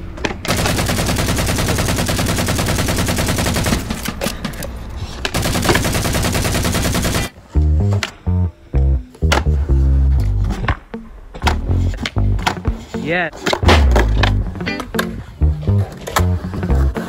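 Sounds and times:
video game rifle fire: 0:00.5 - 0:04.1, 0:05.3 - 0:07.4
bass-heavy music: 0:07.5 - 0:17.0.

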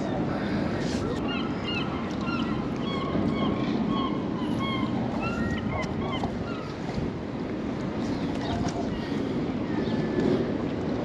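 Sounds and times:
wind buffeting microphone: 0:00.0 - 0:11.0
birds calling: 0:00.4 - 0:06.9.

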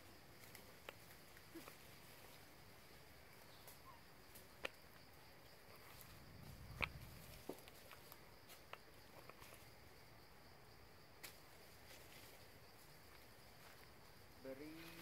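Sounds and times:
faint high insect drone: 0:00.0 - 0:15.0
small clicks and ticks: 0:00.4 - 0:02.4.

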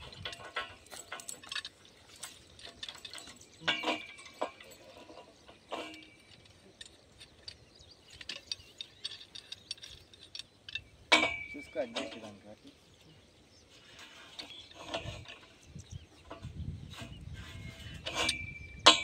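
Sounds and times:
metal clicks and clanks: 0:00.0 - 0:12.8, 0:13.8 - 0:19.0
loud ringing metal clanks: 0:02.6 - 0:06.5, 0:08.5 - 0:12.5, 0:17.6 - 0:19.0.

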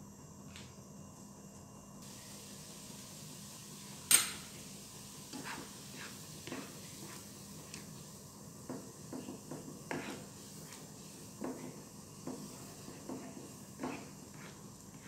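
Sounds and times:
low hiss: 0:02.0 - 0:15.0
spatula scraping a frying pan: 0:05.3 - 0:07.3, 0:09.5 - 0:15.0.

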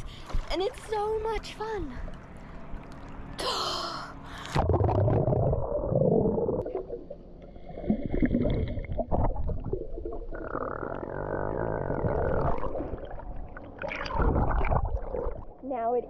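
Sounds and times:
steady hum: 0:00.0 - 0:16.0
underwater rumbling and bubbling: 0:00.0 - 0:16.0
water splashing: 0:12.0 - 0:15.7.

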